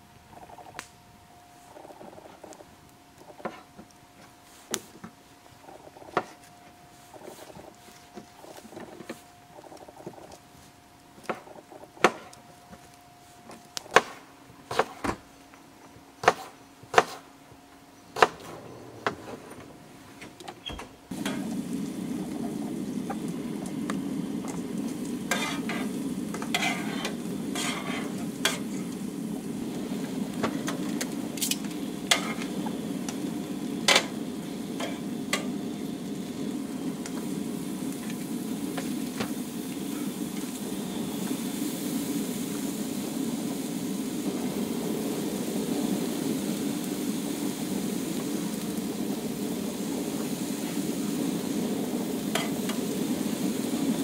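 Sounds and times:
knife chopping on wooden board: 13.9s - 15.1s, 16.2s - 17.2s
mushrooms sizzling on griddle: 21.1s - 54.0s
stirring scrapes: 25.3s - 28.9s.

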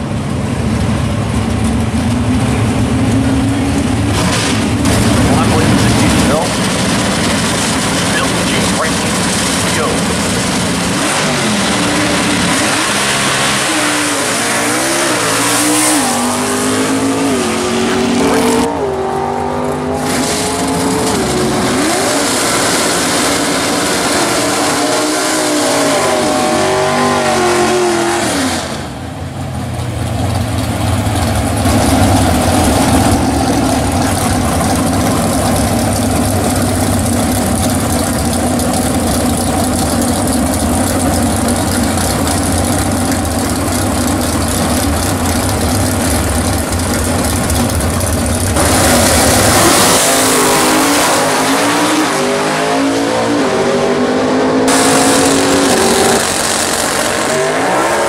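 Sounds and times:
car engines idling: 0.0s - 25.1s, 28.8s - 51.6s, 54.7s - 57.6s
drag car engines accelerating: 0.0s - 58.0s.

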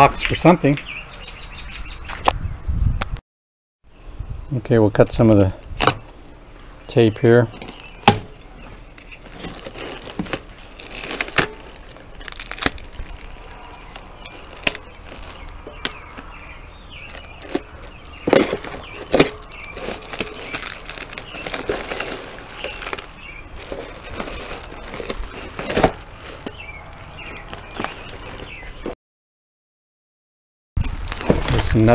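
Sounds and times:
plastic wrap crinkling: 7.6s - 28.9s, 30.8s - 31.9s
box cutter slitting plastic: 9.2s - 16.0s, 17.1s - 23.1s, 23.7s - 26.6s.

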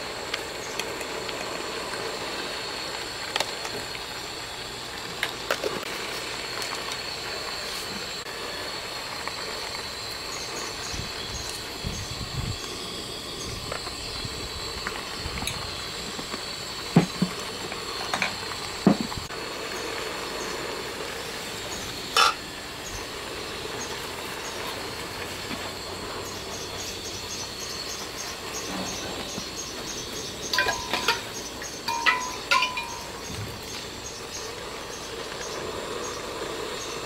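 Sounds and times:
steady hiss: 0.0s - 37.0s
thin high whine: 0.0s - 37.0s
spoon clinking on steel pot: 30.6s - 31.3s, 31.9s - 33.2s.

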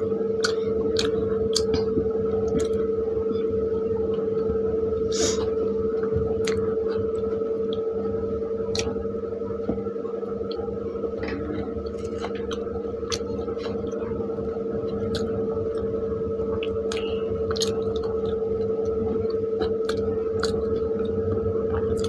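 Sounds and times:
loud steady hum: 0.0s - 22.0s
person chewing: 0.3s - 3.5s, 4.1s - 7.8s, 8.7s - 9.0s, 11.6s - 14.0s, 14.8s - 15.9s, 16.5s - 22.0s
wet squishing of bread: 11.8s - 15.9s, 16.5s - 22.0s
mouth clicks and smacks: 16.6s - 18.4s.

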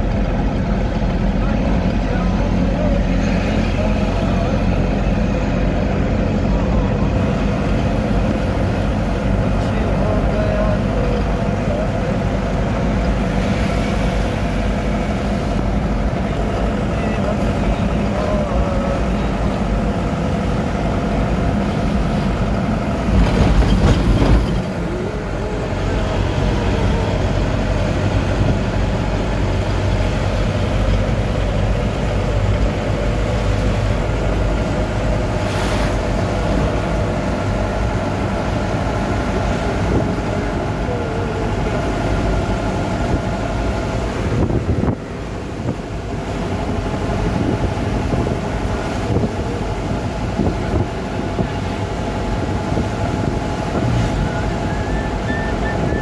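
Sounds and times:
bus engine drone: 0.0s - 56.0s
tyre and wind rumble: 19.4s - 56.0s.

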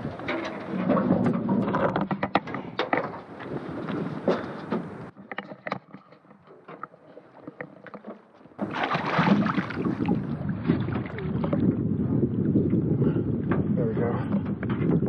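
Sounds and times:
water splashing against boat: 0.0s - 15.0s.

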